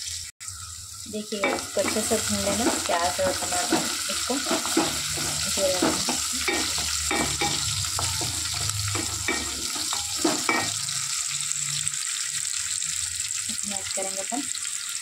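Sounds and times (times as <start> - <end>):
onions sizzling in hot oil: 0.0 - 15.0
wooden spoon scraping a pan: 1.4 - 10.8.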